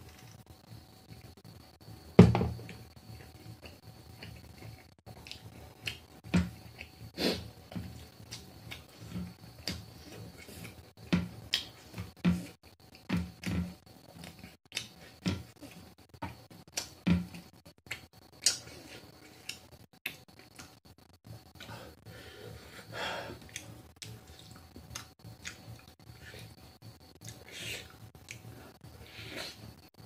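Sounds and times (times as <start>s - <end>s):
person chewing: 2.7s - 13.0s, 16.7s - 20.8s, 23.4s - 29.7s.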